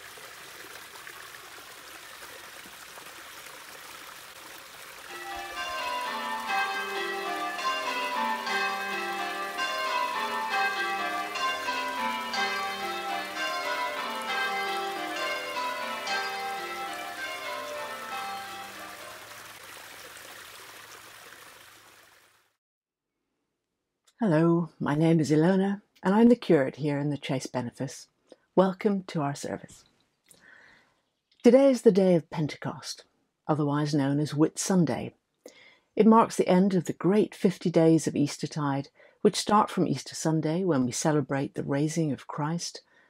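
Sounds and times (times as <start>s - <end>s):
water trickling into a stream: 0.0s - 22.6s
church bells ringing: 5.1s - 19.5s.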